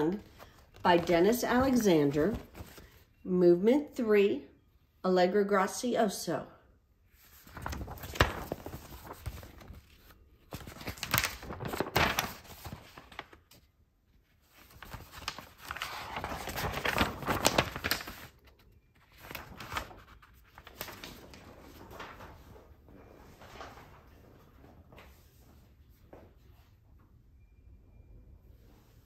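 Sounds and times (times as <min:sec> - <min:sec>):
paper rustling: 0:00.0 - 0:03.1, 0:07.2 - 0:25.5.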